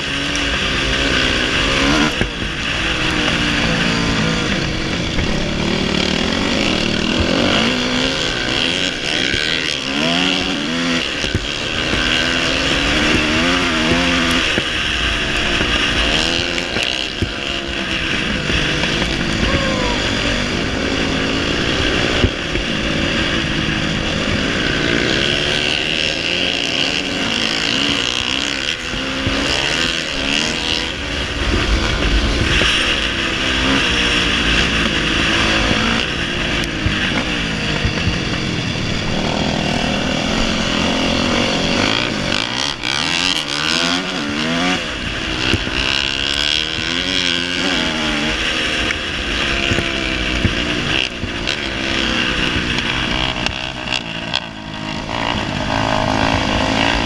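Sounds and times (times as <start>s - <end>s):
dirt bike engine revving: 0.0s - 57.0s
wind noise: 0.0s - 57.0s.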